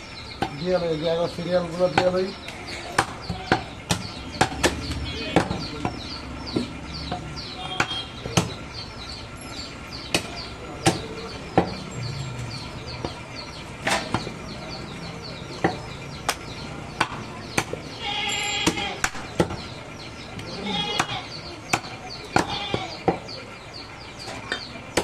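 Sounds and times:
cleaver chopping on wooden block: 2.9 - 7.2, 10.1 - 11.8, 17.0 - 17.8, 21.0 - 23.3.

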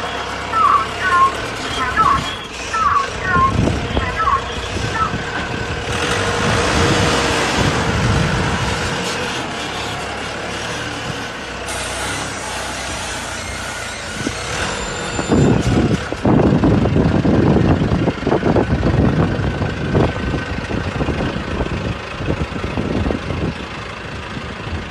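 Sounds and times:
diesel engine rumbling: 0.0 - 24.9.

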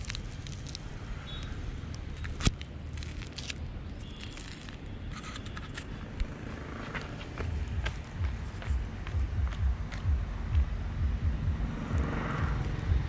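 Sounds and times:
handling clicks and scrapes: 0.0 - 7.6
low outdoor rumble: 5.8 - 13.0.

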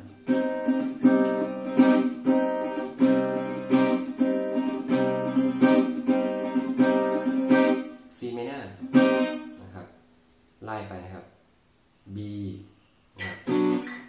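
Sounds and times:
acoustic guitar strumming chord: 0.0 - 8.1, 8.8 - 9.6, 13.2 - 14.0.

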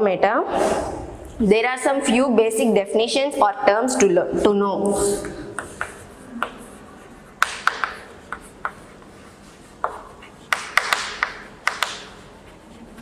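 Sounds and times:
chalk scratching strokes: 5.0 - 13.0
chalk tapping on blackboard: 5.5 - 13.0.

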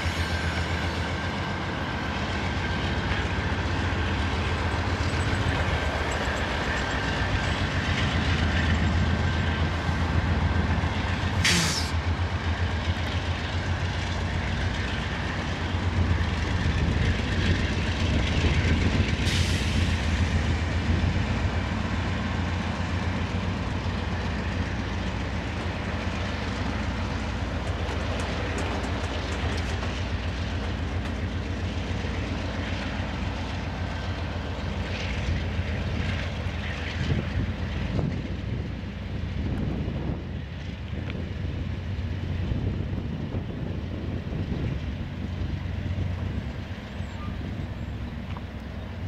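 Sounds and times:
diesel locomotives droning: 0.0 - 49.0
coal hoppers rolling on rails: 22.6 - 38.8.

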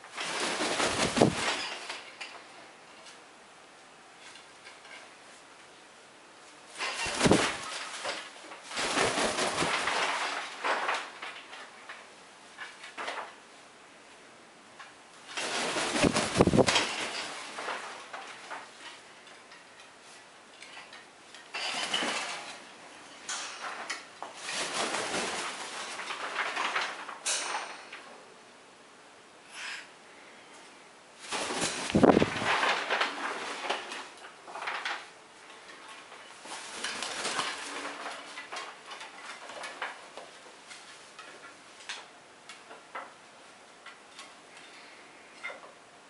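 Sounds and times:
bird wings flapping: 0.1 - 2.0, 6.8 - 11.5, 15.3 - 18.7, 24.4 - 27.2, 31.2 - 34.1, 36.4 - 40.0
bird clattering on wooden perches: 0.2 - 2.4, 6.8 - 11.7, 15.3 - 19.7, 20.6 - 22.6, 36.0 - 40.2.

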